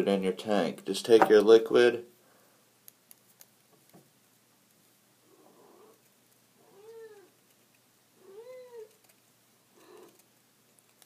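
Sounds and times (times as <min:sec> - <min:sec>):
cat meowing: 0:06.6 - 0:07.3, 0:08.2 - 0:08.9.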